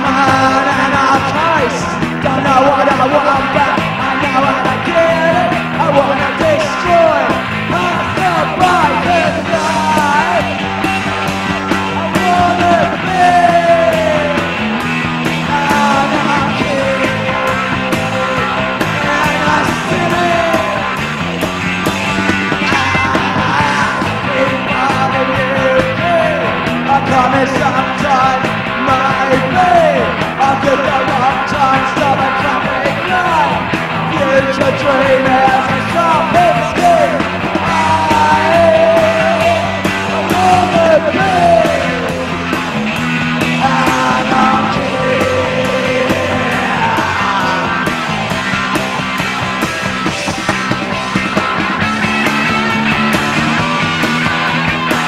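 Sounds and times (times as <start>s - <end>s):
person yelling vocals: 0.0s - 10.6s, 11.9s - 14.6s, 15.5s - 20.9s, 22.6s - 28.3s, 28.9s - 42.3s, 43.6s - 47.9s
bass guitar: 0.0s - 55.0s
distorted electric guitar: 0.0s - 55.0s
fast drum beat: 0.0s - 55.0s.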